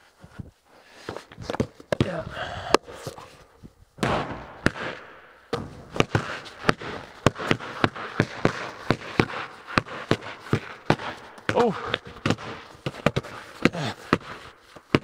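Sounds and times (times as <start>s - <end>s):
basketballs bouncing on concrete: 1.1s - 2.9s, 4.0s - 15.0s
basketball striking the hoop: 4.0s - 13.8s.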